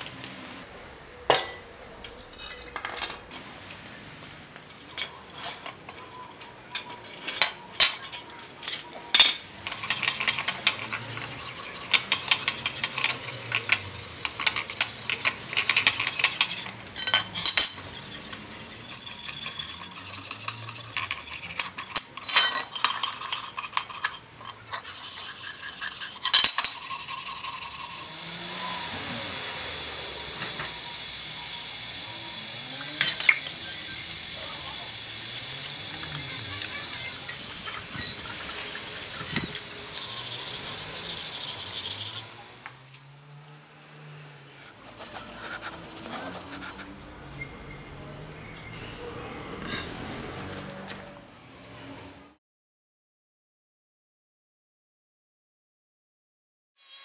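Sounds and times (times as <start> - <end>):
cleaver clinking on concrete: 4.7 - 42.2
wire brush scrubbing metal: 9.6 - 42.6, 44.6 - 47.1.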